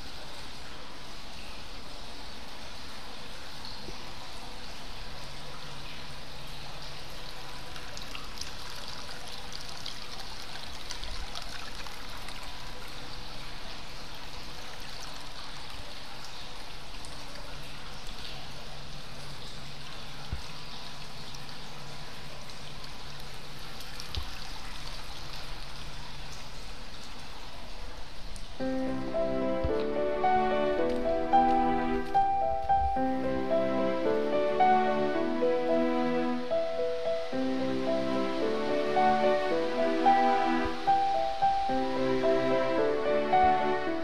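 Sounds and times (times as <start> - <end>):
water pouring into bath tub: 5.0 - 29.0.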